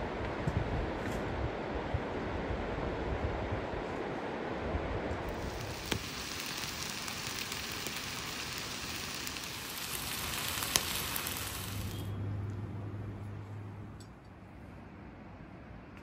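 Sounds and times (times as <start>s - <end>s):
burning wood crackles: 5.1s - 12.7s
stew bubbling and sizzling: 5.2s - 12.7s.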